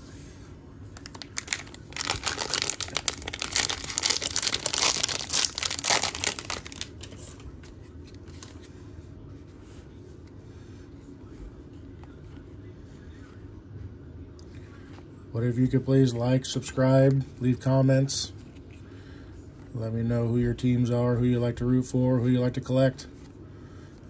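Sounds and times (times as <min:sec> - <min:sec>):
plastic wrapper tearing and crinkling: 0:01.0 - 0:07.2.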